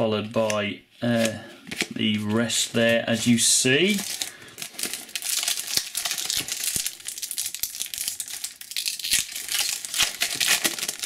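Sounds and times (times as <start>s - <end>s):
foil pack crinkling and tearing: 3.8s - 11.0s.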